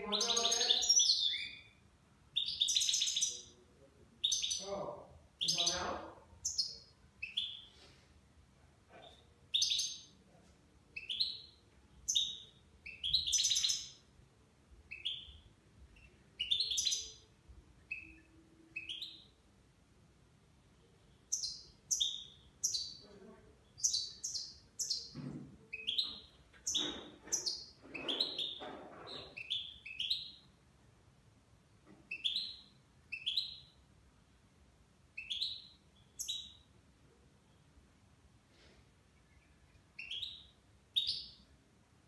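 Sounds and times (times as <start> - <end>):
goldfinch singing: 0.0 - 1.7.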